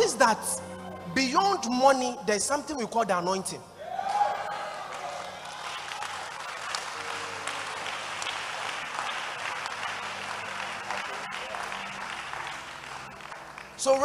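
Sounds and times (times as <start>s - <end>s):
congregation applauding: 3.8s - 14.0s.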